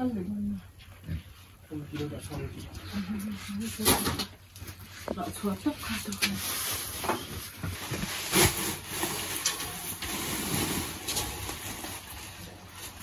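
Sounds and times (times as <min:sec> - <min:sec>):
woven sacks rustling: 0:05.2 - 0:13.0.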